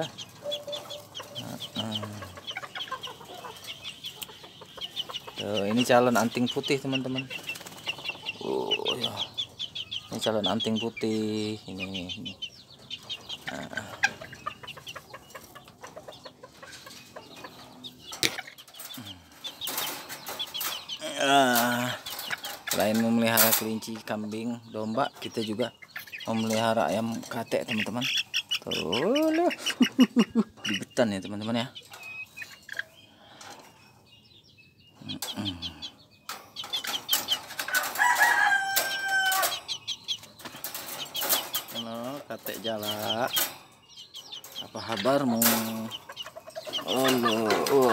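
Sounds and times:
chickens clucking: 0:00.0 - 0:47.9
high chirping calls: 0:00.0 - 0:47.9
rooster crowing: 0:37.7 - 0:39.5.

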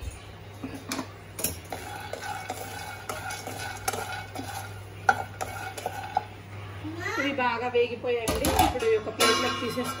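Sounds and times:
spatula stirring peanuts in pan: 0:01.4 - 0:06.4.

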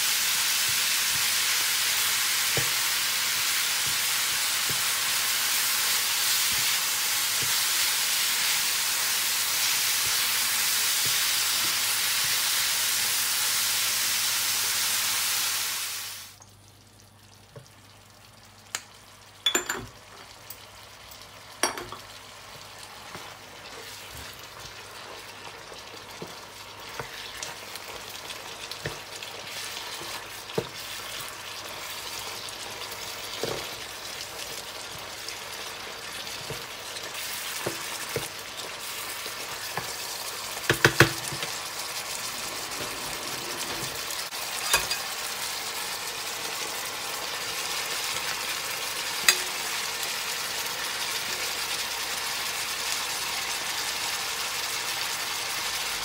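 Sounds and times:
meat sizzling in a frying pan: 0:00.0 - 0:16.4, 0:17.0 - 0:56.0
spatula knocking against pan: 0:40.7 - 0:41.4.

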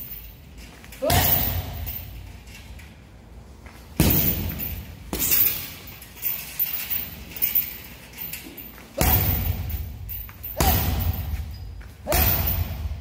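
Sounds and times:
hard thuds on punching bag: 0:04.0 - 0:05.6, 0:09.0 - 0:09.8, 0:10.5 - 0:13.0.

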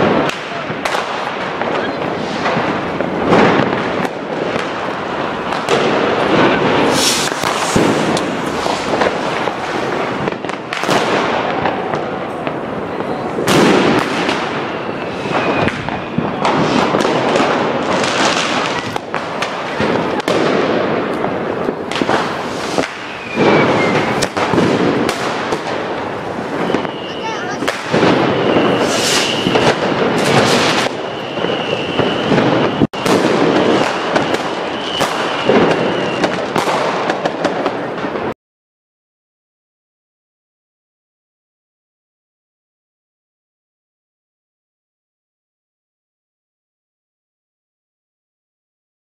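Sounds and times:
fireworks cracking and banging: 0:00.0 - 0:38.4
loud firework blasts: 0:00.0 - 0:38.4.

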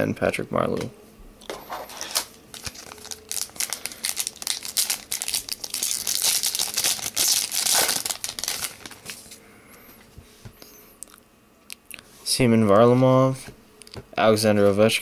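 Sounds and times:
foil wrapper tearing and crinkling: 0:01.9 - 0:09.3.

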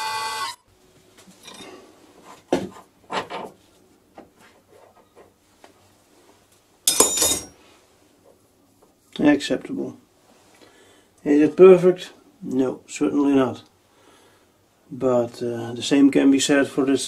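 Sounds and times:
metal knocks and clinks: 0:06.9 - 0:07.6.

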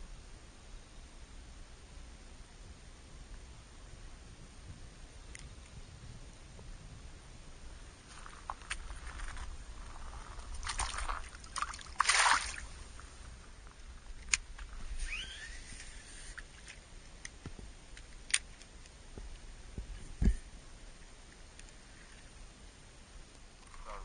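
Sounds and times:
water sloshing and trickling: 0:08.2 - 0:13.8.

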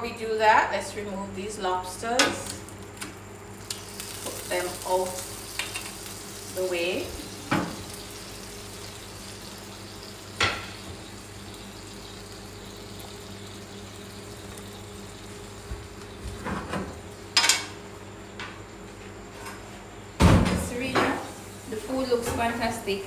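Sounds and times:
low hiss and hum: 0:00.0 - 0:23.0
griddle plate clanking: 0:04.2 - 0:06.1, 0:07.3 - 0:08.3, 0:10.2 - 0:11.1, 0:16.4 - 0:17.8
tongs clacking on metal griddle: 0:05.6 - 0:06.0.

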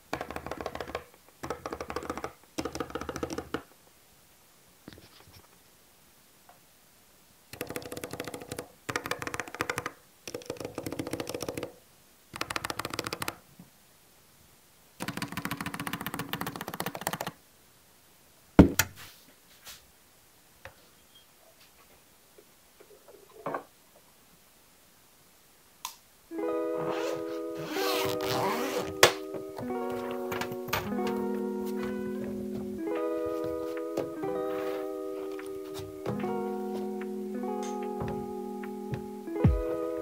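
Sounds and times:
mechanical keyboard typing: 0:00.2 - 0:03.6, 0:07.5 - 0:11.7, 0:12.4 - 0:13.4, 0:15.0 - 0:17.4.

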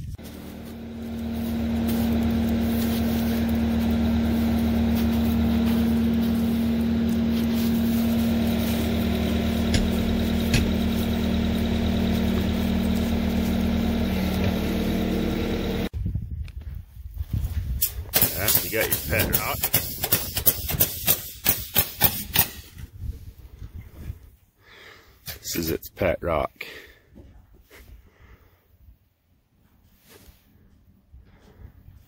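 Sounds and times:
engine idling: 0:00.0 - 0:15.9.

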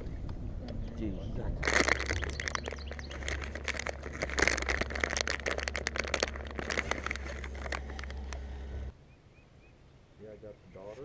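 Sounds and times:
steady low hum: 0:00.0 - 0:10.6
plastic wrapper crinkling: 0:01.6 - 0:08.4.

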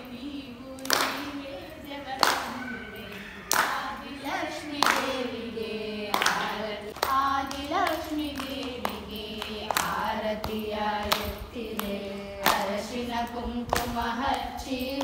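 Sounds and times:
devotional singing: 0:00.0 - 0:15.0
sharp hand claps: 0:00.8 - 0:01.4, 0:02.2 - 0:02.7, 0:03.5 - 0:04.0, 0:04.7 - 0:05.3, 0:06.1 - 0:12.7.

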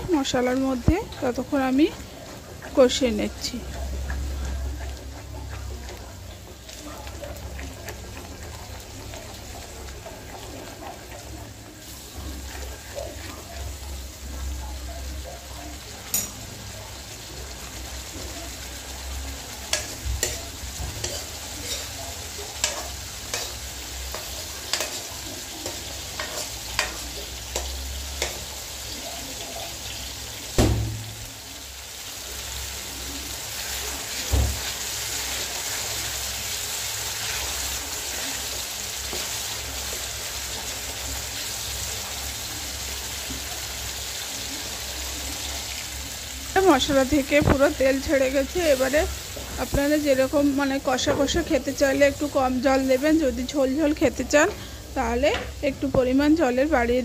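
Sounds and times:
sauce sizzling in a pan: 0:00.0 - 0:57.0
spatula tapping metal pan: 0:16.1 - 0:16.4, 0:19.7 - 0:21.8, 0:22.6 - 0:25.0, 0:25.6 - 0:28.5
spatula scraping pan: 0:19.7 - 0:28.6.

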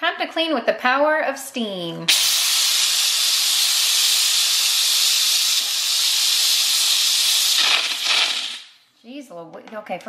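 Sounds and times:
steam cleaner hissing: 0:02.1 - 0:08.8.

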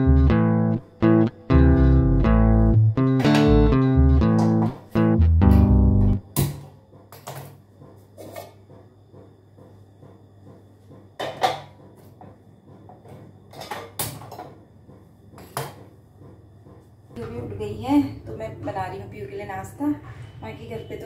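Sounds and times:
guitar background music: 0:00.0 - 0:06.3.

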